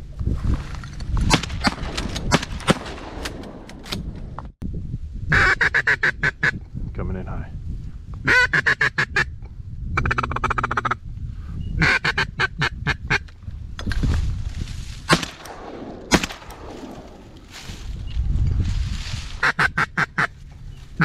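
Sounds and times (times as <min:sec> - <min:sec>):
sharp bangs: 0:01.3 - 0:04.2, 0:15.1 - 0:17.9.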